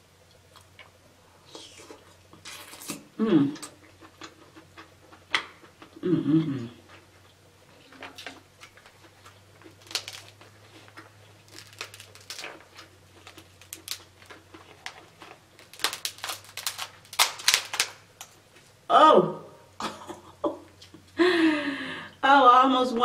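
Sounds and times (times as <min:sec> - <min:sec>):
crab shell cracking: 0:08.2 - 0:18.4.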